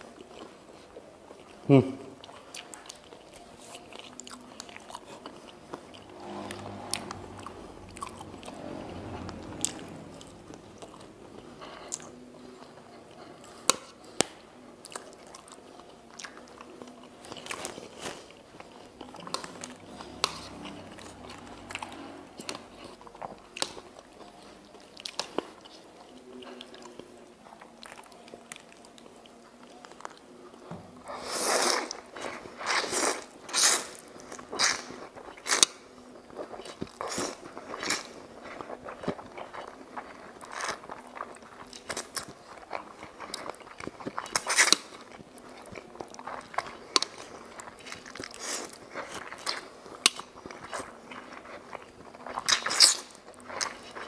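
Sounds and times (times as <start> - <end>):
person chewing noodles: 0.0 - 54.0
slurping noodles: 5.0 - 12.2, 31.1 - 35.6.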